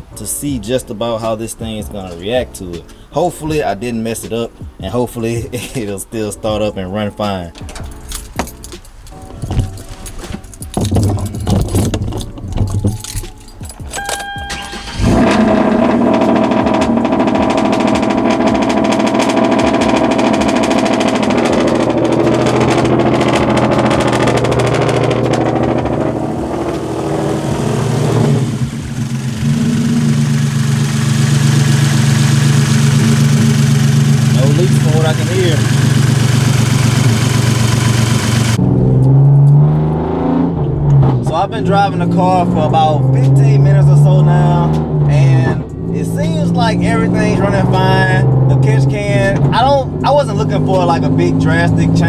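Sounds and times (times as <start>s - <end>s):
car engine starting and running: 7.4s - 52.0s
handling clicks and knocks: 7.5s - 14.6s.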